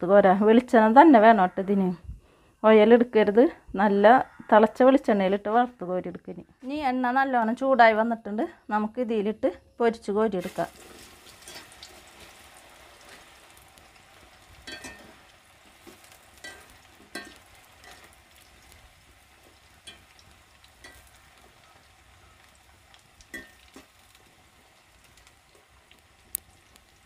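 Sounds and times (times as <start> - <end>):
frying oil sizzling: 10.4 - 27.0
spatula scraping and clinking: 11.4 - 11.8, 14.6 - 15.2, 16.4 - 18.2, 20.8 - 21.1.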